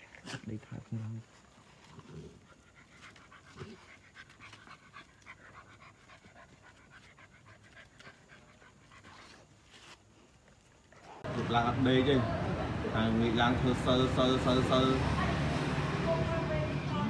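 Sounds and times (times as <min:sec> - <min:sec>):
dog panting: 0:00.0 - 0:11.3.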